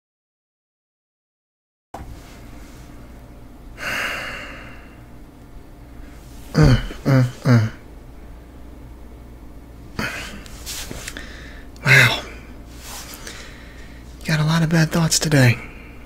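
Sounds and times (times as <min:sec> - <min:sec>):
man breathing out: 0:03.8 - 0:05.1, 0:11.1 - 0:14.1
short falling vocal sounds: 0:06.5 - 0:07.8.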